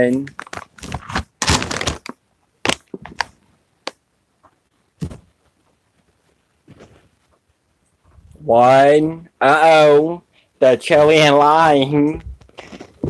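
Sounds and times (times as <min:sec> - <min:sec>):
plastic chip bag crinkling: 0:00.1 - 0:03.4.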